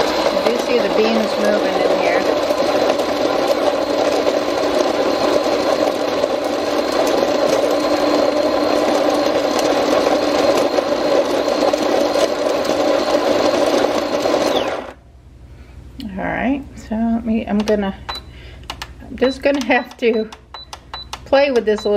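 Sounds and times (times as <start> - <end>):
coffee grinder grinding beans: 0.0 - 15.0.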